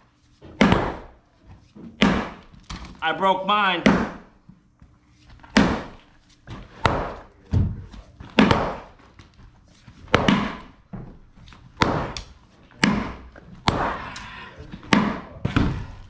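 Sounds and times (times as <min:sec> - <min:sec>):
sledgehammer striking concrete: 0:00.6 - 0:01.1, 0:02.0 - 0:02.5, 0:05.5 - 0:06.0, 0:06.7 - 0:07.2, 0:08.4 - 0:09.0, 0:10.1 - 0:10.8, 0:11.8 - 0:12.2, 0:12.8 - 0:14.1.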